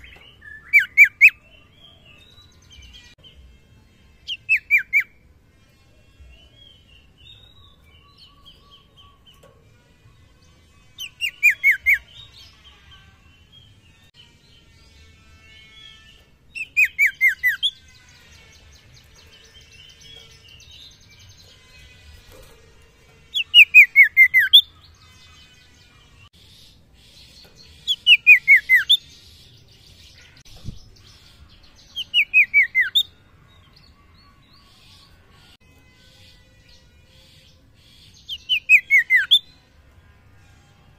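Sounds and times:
bird singing whistled notes: 0.0 - 2.9, 11.0 - 12.4, 15.8 - 21.5, 27.8 - 29.3, 30.6 - 33.2, 38.2 - 39.6.

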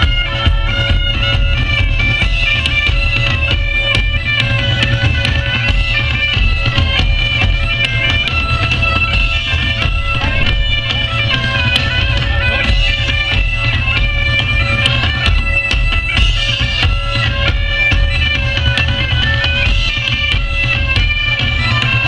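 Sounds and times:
bagpipes playing: 0.0 - 22.0
drums: 0.0 - 22.0
heavy low boom: 9.9 - 11.6.

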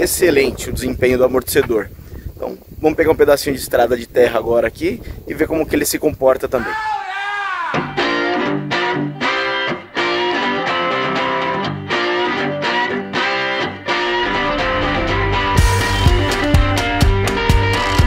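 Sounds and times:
guitar riff music with beat: 7.7 - 18.0.

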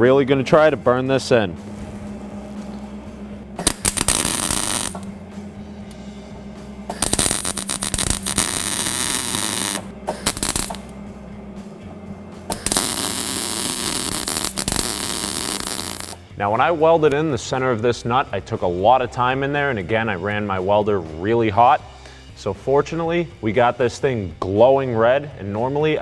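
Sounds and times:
steady low hum: 0.0 - 20.3
arc welding: 1.6 - 6.1, 6.9 - 11.0, 12.5 - 16.2.

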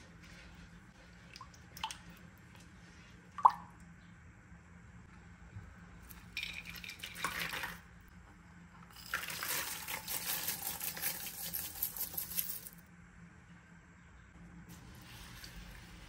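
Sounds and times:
seeds and nuts trickling into a bowl: 9.0 - 12.7
nuts rattling into a bowl: 9.0 - 12.8.

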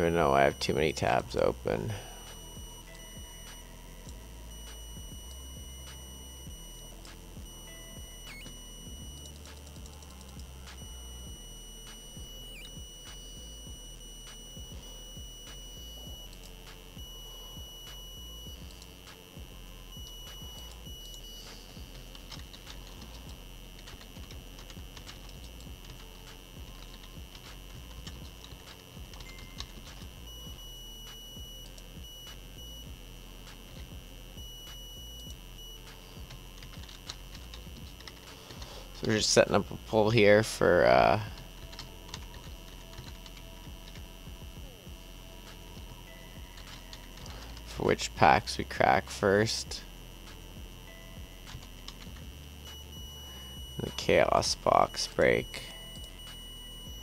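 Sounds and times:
high-pitched electronic tone: 0.0 - 18.9, 46.0 - 57.0.

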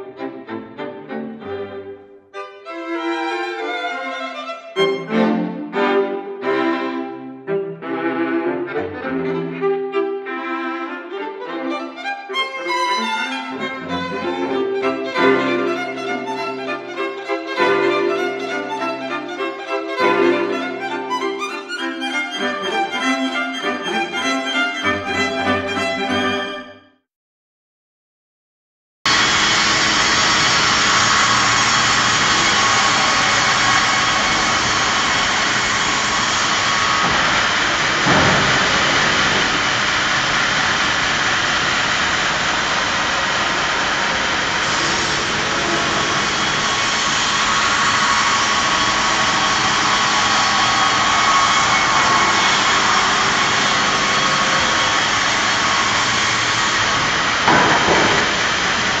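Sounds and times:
sawmill machinery running: 12.4 - 26.3, 29.1 - 59.0
falling and rising sweep: 29.1 - 59.0.

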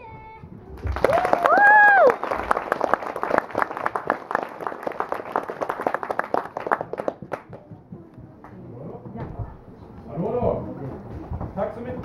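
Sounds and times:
audience applauding: 0.8 - 7.7.

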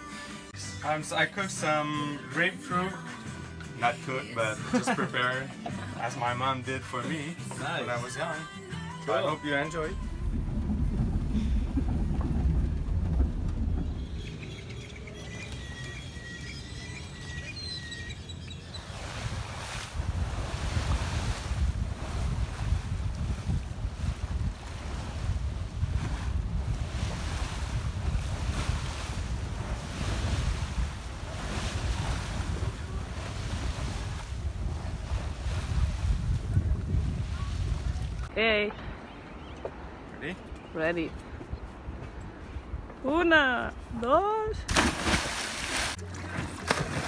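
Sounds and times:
birds chirping: 9.1 - 19.7, 38.1 - 42.4
sea water splashing along hull: 9.1 - 38.3, 44.7 - 47.0
low rumble: 9.5 - 17.2, 19.9 - 38.3
wind buffeting microphone: 9.5 - 43.0.

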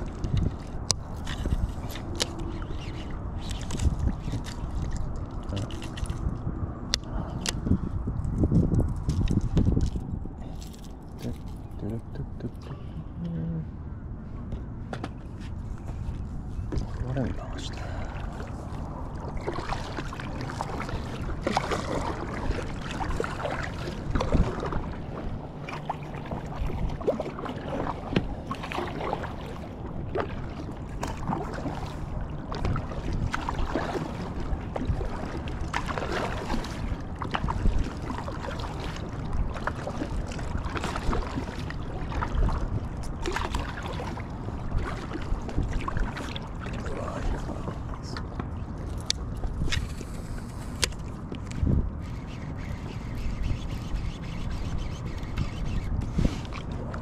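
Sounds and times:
water rushing: 16.9 - 48.2.

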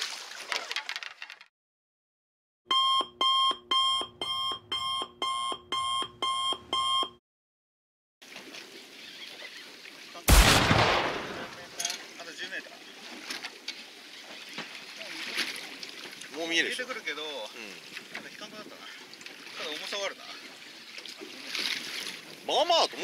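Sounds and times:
electronic alarm beeping: 2.7 - 7.2
boat and water noise: 8.2 - 23.0
loud blast of noise: 10.3 - 11.6.

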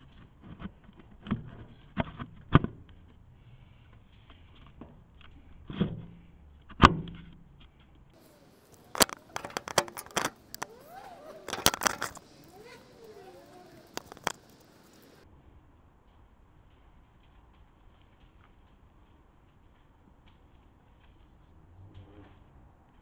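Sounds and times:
camera handling knocks and clicks: 8.9 - 10.6, 11.5 - 12.2.

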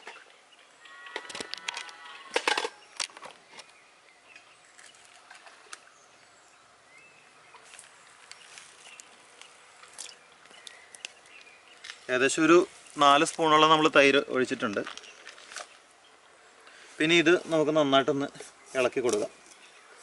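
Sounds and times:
animal call: 0.8 - 2.5.

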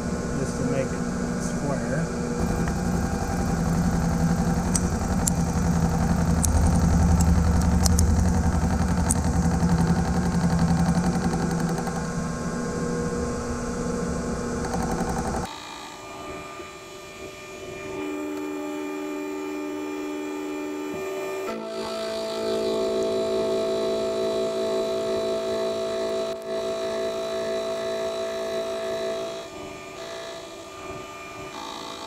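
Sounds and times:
low steady machine hum: 0.0 - 32.0
milling machine cutting drone: 0.0 - 32.0
sharp ticks: 2.4 - 12.1, 14.6 - 15.5.

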